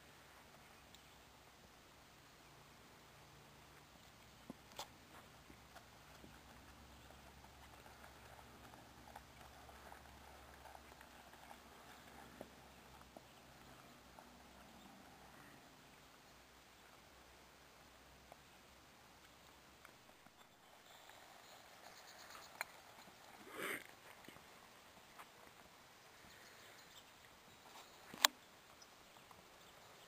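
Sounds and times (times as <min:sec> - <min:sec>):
horse hoofbeats on grass: 0:03.6 - 0:16.1, 0:17.6 - 0:26.4.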